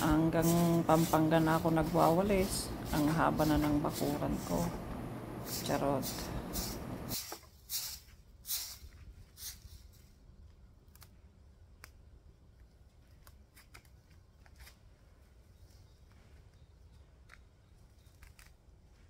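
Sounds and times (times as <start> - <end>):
broom sweeping grass and dirt: 0.0 - 4.8, 5.4 - 10.1.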